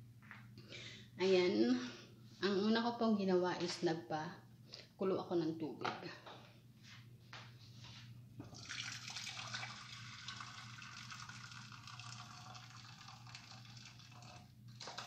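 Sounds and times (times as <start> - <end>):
water pouring into metal pot: 8.4 - 15.0.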